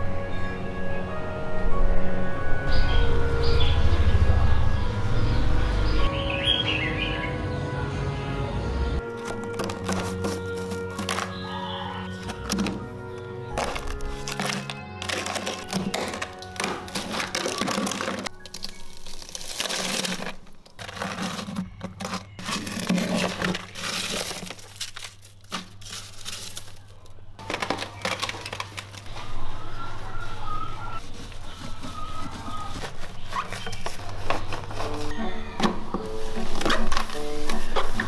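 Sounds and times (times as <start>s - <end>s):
light background music: 0.0s - 21.2s, 29.1s - 38.0s
ice scraped and crunching: 9.1s - 38.0s.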